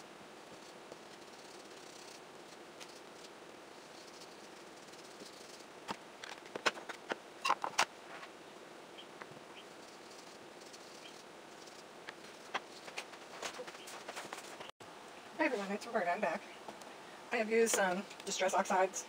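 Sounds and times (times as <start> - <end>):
sponge dabbing on paper: 0.4 - 5.7.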